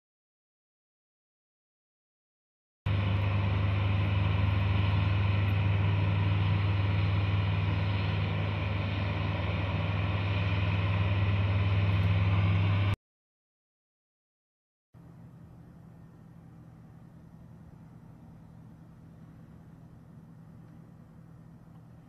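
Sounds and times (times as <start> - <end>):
aircraft engine drone: 2.9 - 13.0, 15.0 - 22.0.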